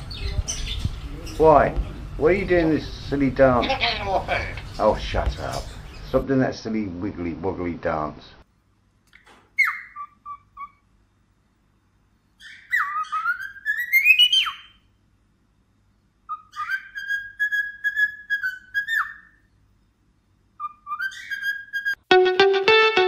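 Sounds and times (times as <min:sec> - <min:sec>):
parakeet chirping: 0:00.0 - 0:04.9, 0:05.5 - 0:06.2, 0:09.6 - 0:10.9, 0:12.4 - 0:14.9, 0:16.2 - 0:19.5, 0:20.6 - 0:22.0
parakeet whistling: 0:09.6 - 0:10.8, 0:12.4 - 0:14.8, 0:16.3 - 0:19.4, 0:20.6 - 0:22.0.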